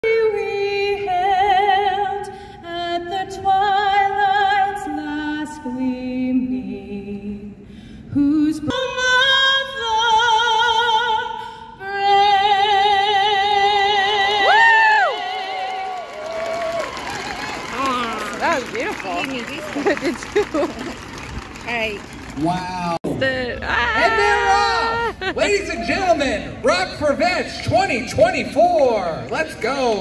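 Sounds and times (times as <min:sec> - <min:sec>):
woman singing with vibrato: 0:00.0 - 0:16.2
crowd whooping and cheering: 0:14.3 - 0:23.0, 0:23.7 - 0:25.4.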